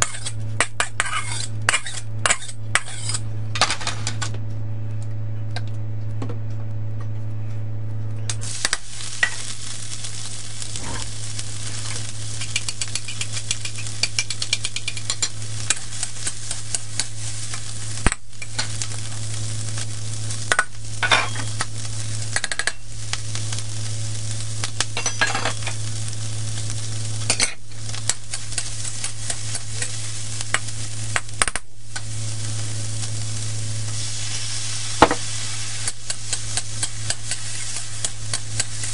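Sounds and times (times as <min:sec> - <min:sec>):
spatula scraping metal wok: 0:00.0 - 0:03.2, 0:10.6 - 0:11.2
steady low hum: 0:00.0 - 0:38.9
meat sizzling in hot oil: 0:08.4 - 0:38.9.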